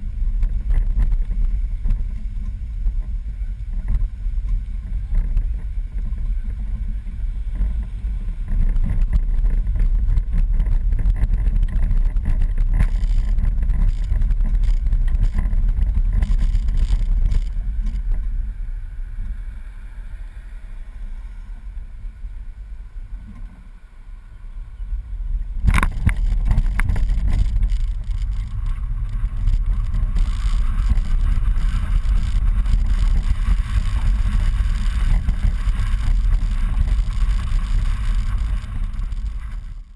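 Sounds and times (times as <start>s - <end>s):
road noise: 0.0s - 39.9s
wind rumble: 0.0s - 39.9s.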